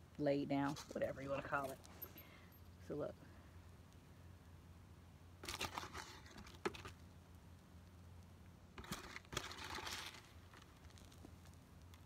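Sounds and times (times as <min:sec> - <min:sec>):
trowel scraping gritty soil: 0:05.4 - 0:06.9, 0:08.8 - 0:11.2.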